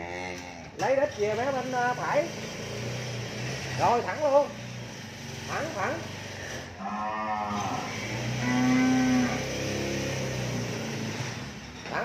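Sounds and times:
cattle mooing: 0:00.0 - 0:00.8, 0:06.8 - 0:10.5.

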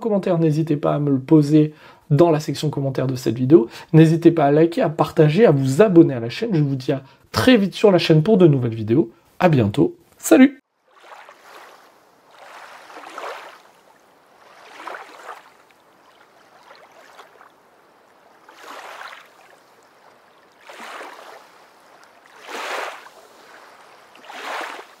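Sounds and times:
small waves washing onto beach: 0:10.7 - 0:25.0.

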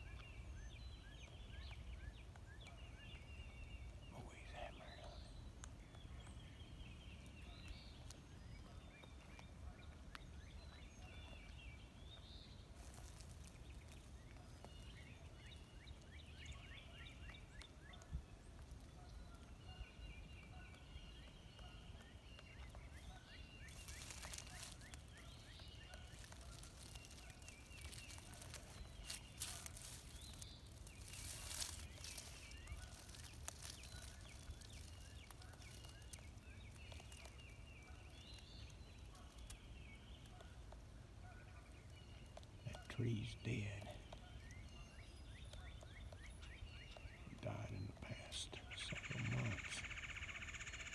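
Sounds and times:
songbirds chirping and trilling: 0:00.0 - 0:50.9
rustling: 0:12.7 - 0:14.8, 0:23.6 - 0:39.6.

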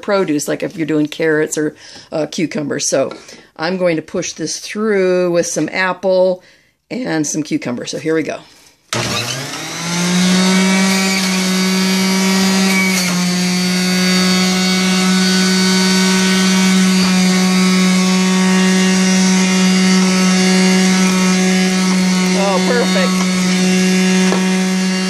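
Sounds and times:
juicer motor whine: 0:09.0 - 0:25.0.

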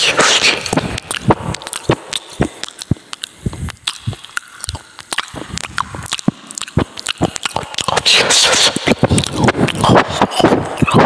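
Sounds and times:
dog chewing meat: 0:00.9 - 0:08.0.

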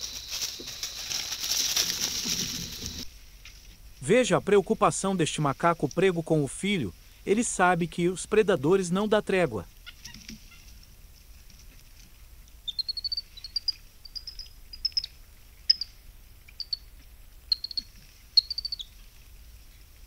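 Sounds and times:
faint high insect hiss: 0:00.0 - 0:08.9, 0:09.5 - 0:20.0
high chirping animal calls: 0:12.7 - 0:16.0, 0:16.6 - 0:16.9, 0:17.5 - 0:19.0.

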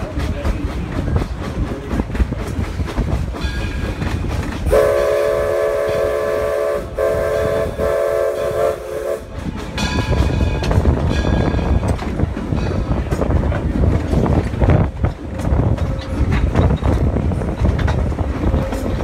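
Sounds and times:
train rumbling on rails: 0:00.0 - 0:19.0
steam locomotive whistle: 0:04.7 - 0:09.4.

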